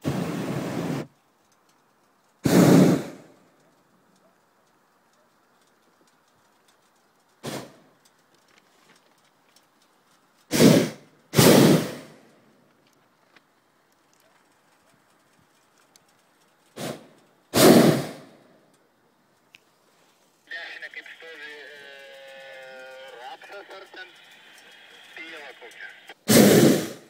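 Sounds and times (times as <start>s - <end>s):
propane burner blasts: 0.0s - 1.2s, 2.4s - 3.5s, 10.4s - 12.4s, 15.4s - 18.5s, 19.6s - 27.0s.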